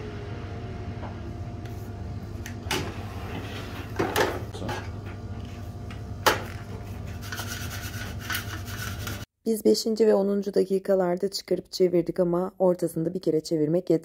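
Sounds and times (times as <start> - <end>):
drawer pulled out: 2.6 - 4.5.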